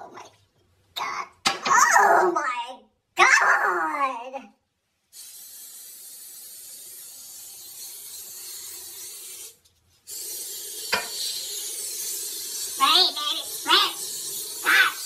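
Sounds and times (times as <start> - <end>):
aerosol can spraying: 5.1 - 15.0.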